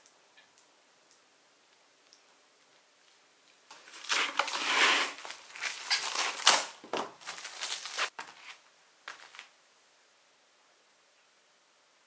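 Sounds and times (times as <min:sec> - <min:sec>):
plastic bag crinkling: 0:03.7 - 0:09.5.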